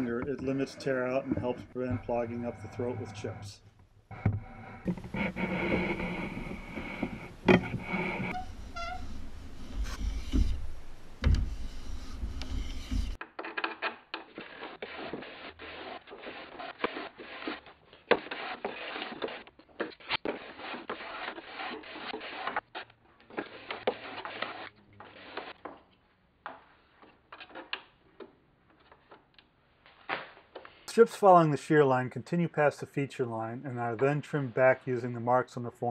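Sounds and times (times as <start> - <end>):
plane scraping wood: 0.0 - 3.5, 4.1 - 13.2, 14.4 - 22.6, 23.3 - 25.6.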